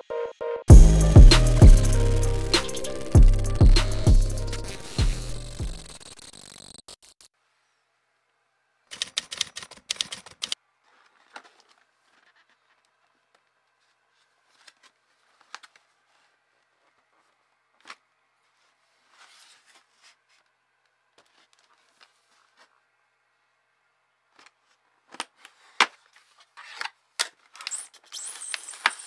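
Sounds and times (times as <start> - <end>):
rapid typing clicks: 8.9 - 10.6.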